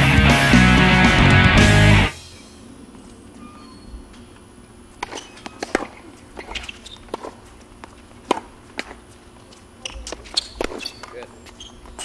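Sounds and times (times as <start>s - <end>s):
tennis ball bouncing: 5.0s - 9.0s, 9.8s - 11.2s
racquets hitting tennis ball: 5.0s - 12.0s.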